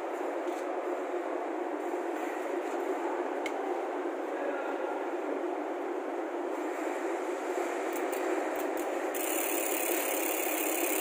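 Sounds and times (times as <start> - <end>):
bicycle freehub ratcheting: 7.9 - 11.0.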